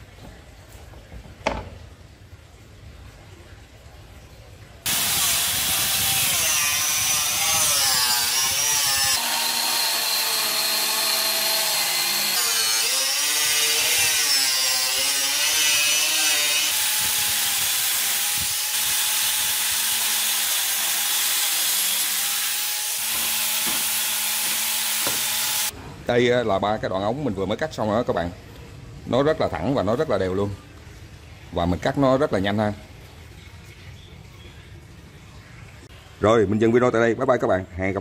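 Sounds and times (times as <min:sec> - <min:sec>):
power cutter cutting plastic pipe: 0:04.9 - 0:25.7.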